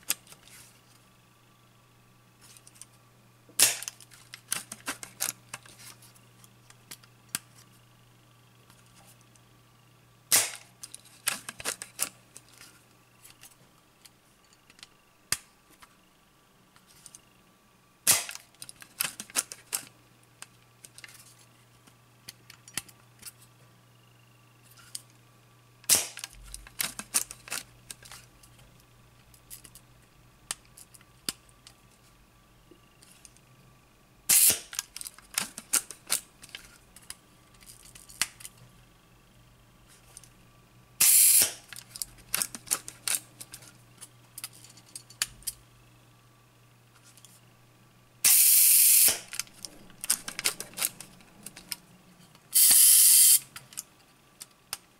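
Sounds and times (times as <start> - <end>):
camera shutter snap: 10.3 - 10.7, 34.3 - 34.7, 41.0 - 41.6, 48.3 - 49.3, 52.6 - 53.4
small mechanical knob clicks: 52.6 - 53.5.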